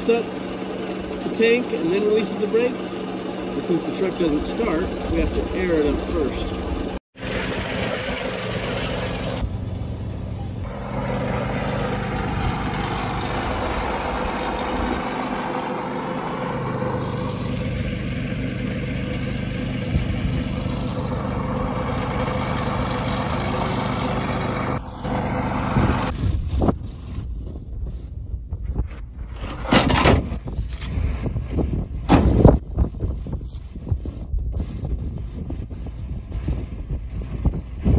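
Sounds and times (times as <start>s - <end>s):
motor humming: 0.2s - 26.8s
knocks and clanks: 29.3s - 31.2s, 32.0s - 32.6s.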